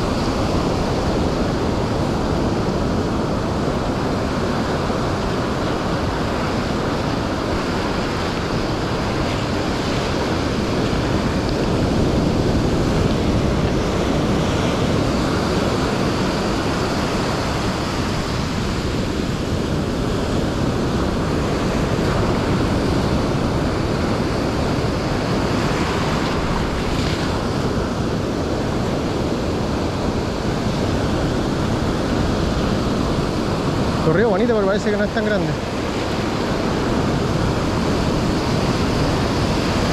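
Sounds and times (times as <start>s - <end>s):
ocean surf breaking on beach: 0.0s - 39.9s
wind buffeting microphone: 0.0s - 39.9s.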